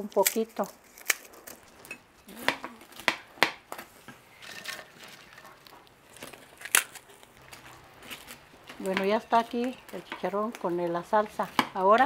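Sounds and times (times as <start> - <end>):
pork rind crackling snaps: 0.0 - 1.7, 5.3 - 10.6.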